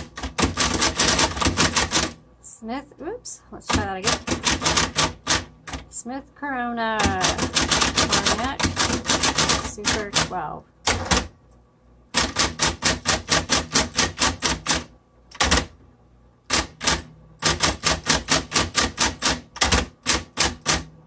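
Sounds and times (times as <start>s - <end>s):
typewriter keys striking: 0.0s - 2.2s, 3.7s - 5.8s, 6.9s - 11.3s, 12.2s - 15.8s, 16.5s - 20.9s
typewriter motor humming: 0.0s - 2.2s, 3.6s - 6.0s, 6.9s - 11.3s, 12.1s - 15.8s, 16.5s - 20.9s.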